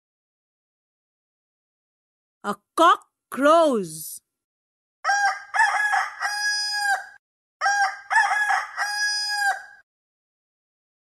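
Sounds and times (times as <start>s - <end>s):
rooster crowing: 5.0s - 9.8s.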